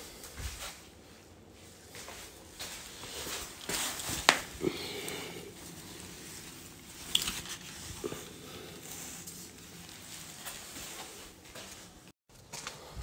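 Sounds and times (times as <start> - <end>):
moss and dry grass rustling: 5.5 - 12.0.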